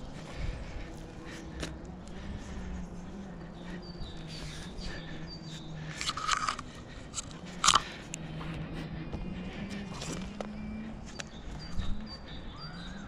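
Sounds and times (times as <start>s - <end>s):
low steady hum: 0.0s - 13.0s
hands and shoes crunching on bark: 1.1s - 2.2s.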